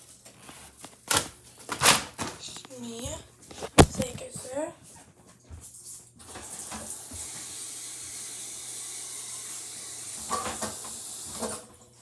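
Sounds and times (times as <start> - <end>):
tap water running: 5.8 - 12.0.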